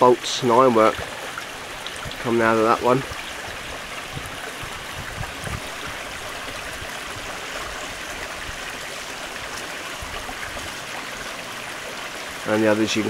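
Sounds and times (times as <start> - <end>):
stream flowing: 0.0 - 13.0.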